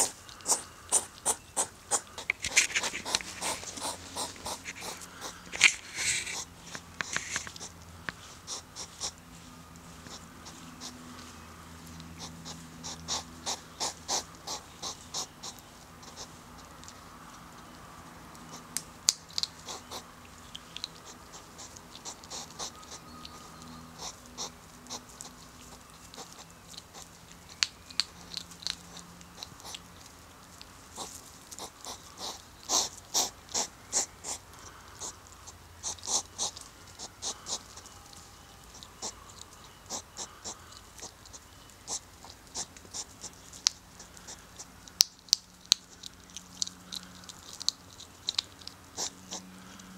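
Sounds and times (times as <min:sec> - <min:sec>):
hedgehogs huffing and snorting: 0:00.0 - 0:49.9.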